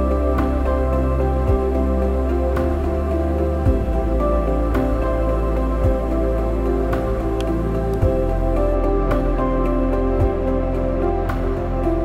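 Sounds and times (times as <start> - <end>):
calm new-age music: 0.0 - 12.0.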